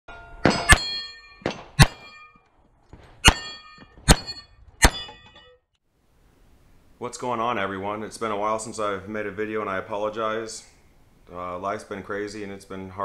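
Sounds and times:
sharp metallic clangs: 0.1s - 2.5s, 3.2s - 5.7s.

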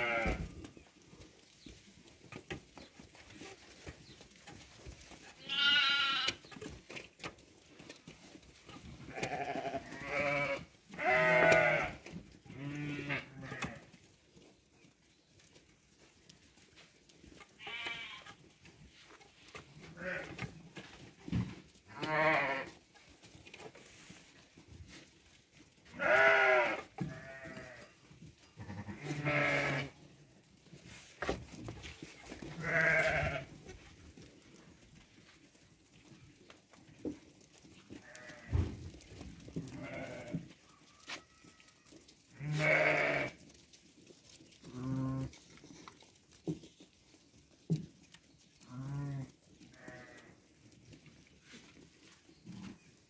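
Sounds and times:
sheep bleating: 0.0s - 0.5s, 5.4s - 6.4s, 9.1s - 13.8s, 17.6s - 18.3s, 19.9s - 20.3s, 21.9s - 22.8s, 25.9s - 27.9s, 28.6s - 30.0s, 32.6s - 33.5s, 38.0s - 38.5s, 39.7s - 40.4s, 42.3s - 43.4s, 48.7s - 50.3s.

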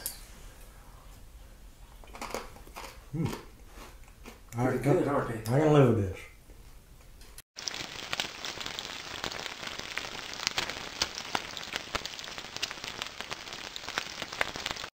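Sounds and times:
bacon sizzling in hot fat: 7.6s - 14.9s.

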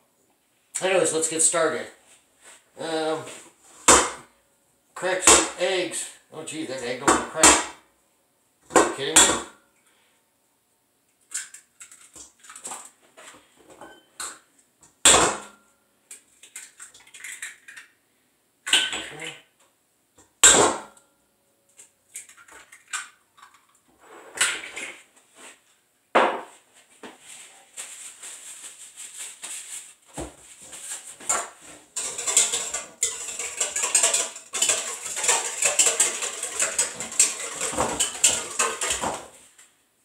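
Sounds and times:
eggs cracked against metal bowl: 16.1s - 17.9s, 32.0s - 39.2s
clattering and scraping in metal bowl: 30.6s - 39.6s.

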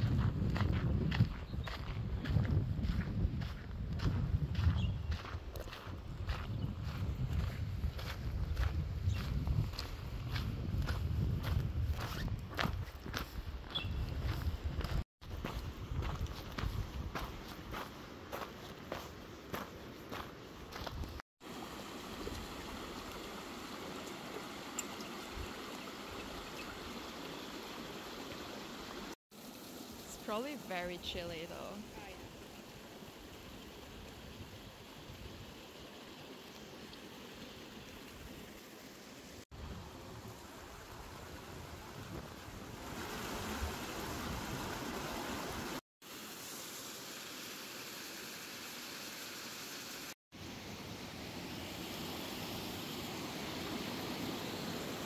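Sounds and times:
wind rumbling on microphone: 0.0s - 17.9s, 39.6s - 45.8s
creek babbling over stones: 21.4s - 49.8s
stream rushing over rocks: 21.4s - 50.2s.

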